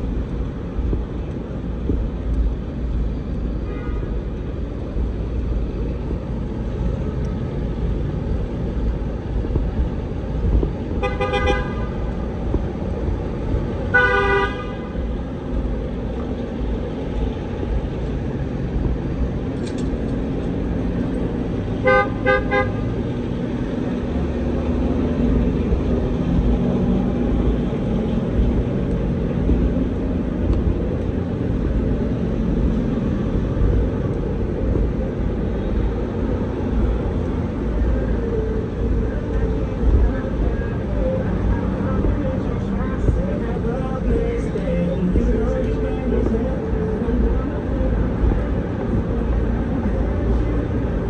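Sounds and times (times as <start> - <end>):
traffic engines rumbling: 0.0 - 51.0
vehicle horns honking: 3.6 - 4.2, 11.0 - 12.0, 13.9 - 15.0, 21.8 - 22.9.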